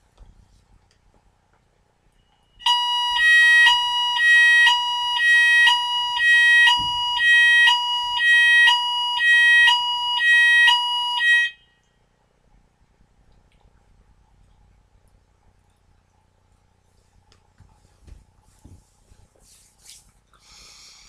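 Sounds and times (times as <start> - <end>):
two-tone fire alarm: 2.6 - 11.8.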